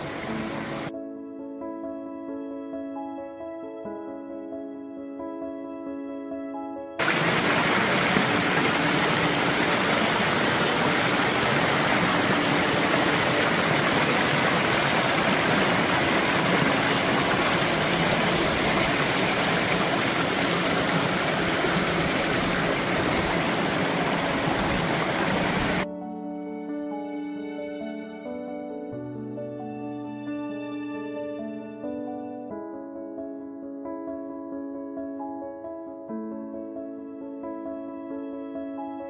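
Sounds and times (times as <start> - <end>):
creek running over rocks: 0.0 - 0.9, 7.0 - 25.8.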